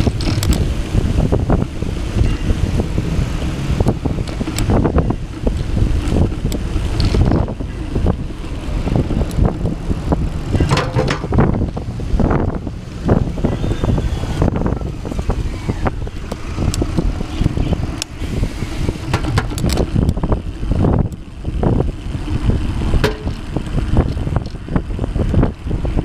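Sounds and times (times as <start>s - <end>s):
low rumble of bicycle rolling: 0.0s - 26.0s
wind buffeting microphone: 0.0s - 26.0s
knocks and rattles: 3.8s - 13.2s, 19.0s - 20.3s, 22.8s - 24.6s.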